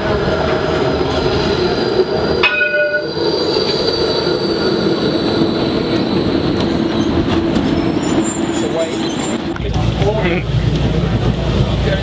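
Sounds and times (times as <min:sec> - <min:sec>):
tram rumbling on rails: 0:00.0 - 0:12.0
high wheel squeal: 0:01.3 - 0:09.6.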